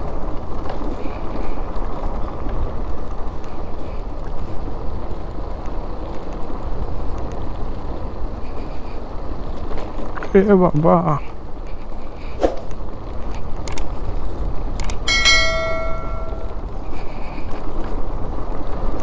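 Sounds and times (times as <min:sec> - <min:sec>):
motorcycle engine and tyres: 0:11.4 - 0:19.0.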